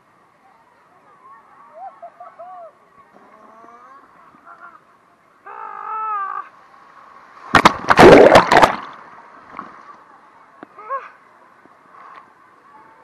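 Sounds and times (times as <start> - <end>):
churning water: 6.6 - 9.8
splash into pool: 7.3 - 9.0
water hitting microphone: 7.4 - 9.8.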